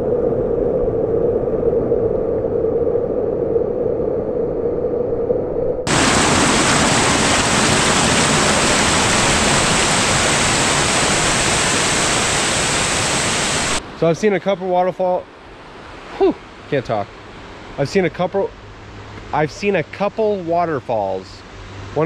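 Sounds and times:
waterfall and creek rushing over rocks: 5.9 - 15.2.

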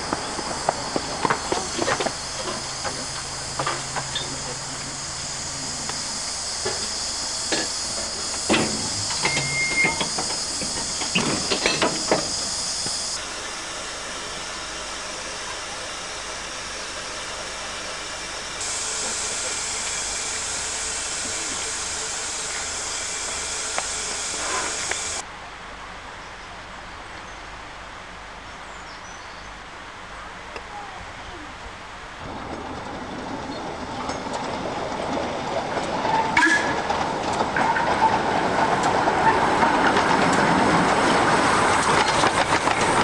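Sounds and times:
steam hissing: 0.0 - 25.2, 33.2 - 43.0
sharp knocks and clanks: 7.5 - 12.4.

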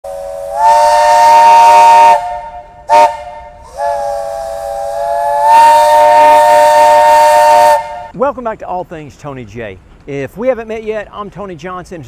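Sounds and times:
multi-chime train whistle: 0.1 - 8.1.

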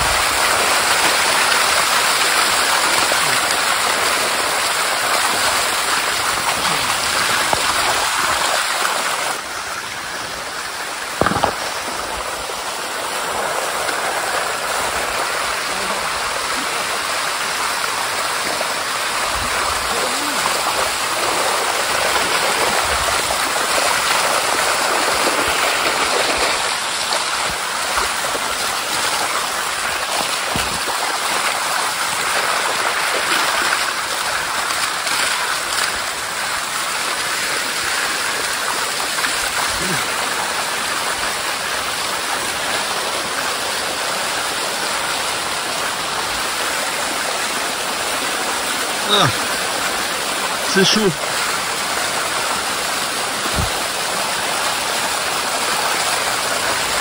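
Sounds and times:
waterfall rushing over rock: 0.0 - 57.0
brief knock: 11.2 - 11.6.

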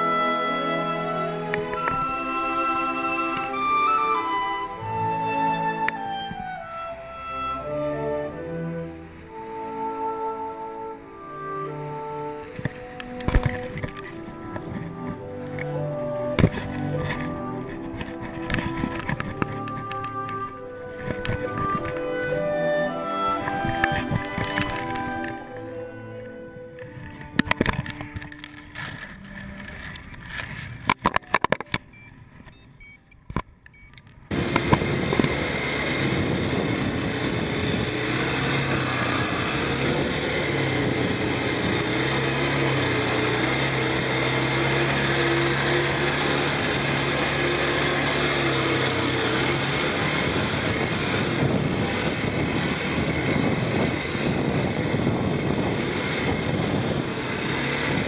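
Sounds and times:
quad bike engines droning: 8.0 - 32.1, 34.3 - 58.0
rumble on camera microphone: 12.5 - 22.6, 23.3 - 32.6
sharp clicks: 16.4 - 22.3, 23.5 - 35.5.

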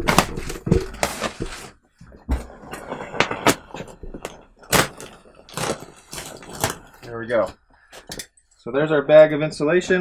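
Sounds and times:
plastic wrapper crinkling: 3.5 - 7.5.

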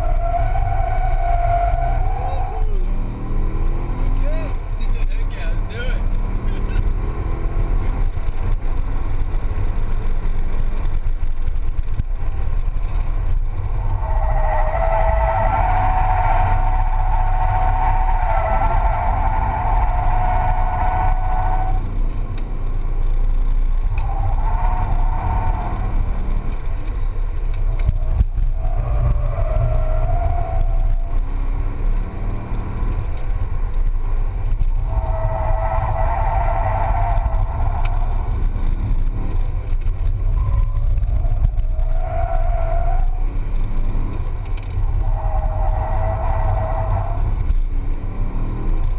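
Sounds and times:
tyres squealing: 0.0 - 3.0, 13.4 - 21.9, 23.9 - 31.6, 34.5 - 47.5
car engine rumble: 0.0 - 48.9.

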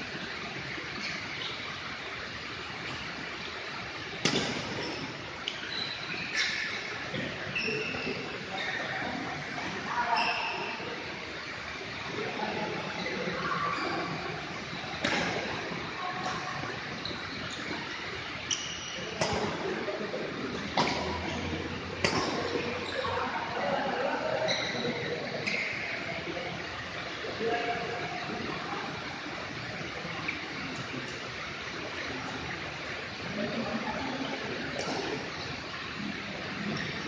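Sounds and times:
steady background hiss: 0.0 - 37.0
shoes squeaking on court: 4.2 - 8.9, 13.7 - 19.8, 20.6 - 23.2
faint voices: 5.0 - 37.0
racquet hitting shuttlecock: 22.0 - 22.7.

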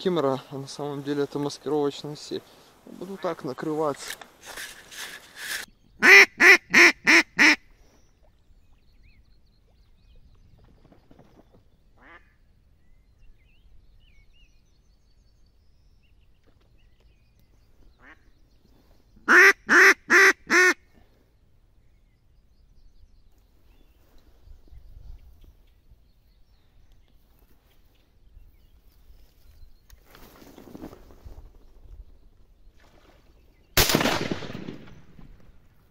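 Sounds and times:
duck quacking: 6.0 - 7.6, 19.3 - 20.8.

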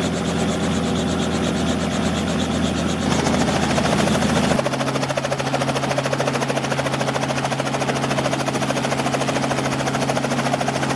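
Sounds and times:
propeller plane engine droning: 0.0 - 10.9.

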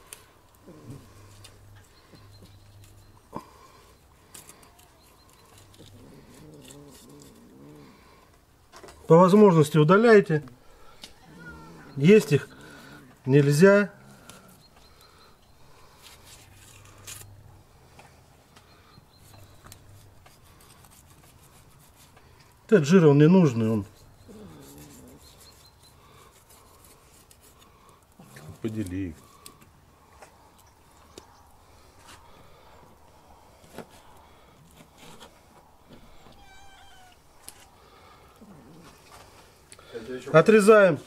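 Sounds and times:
knife cutting and scraping meat: 4.3 - 7.5, 19.2 - 22.2, 24.0 - 27.7
high-pitched animal call: 11.2 - 13.1, 36.2 - 37.2.

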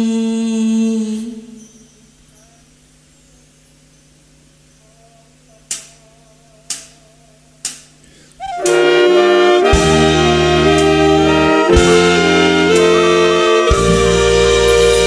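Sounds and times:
bass: 8.4 - 15.0
horn section chords: 8.4 - 15.0
sharp percussion hits: 8.6 - 15.0.

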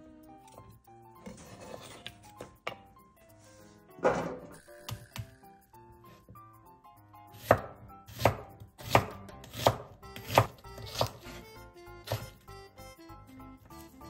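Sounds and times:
knife slicing onion: 7.3 - 12.6.

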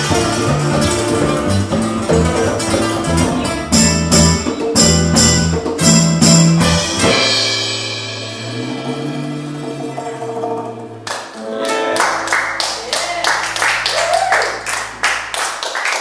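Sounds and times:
live latin band playing: 0.0 - 15.4
cymbal crashes: 6.7 - 11.0.

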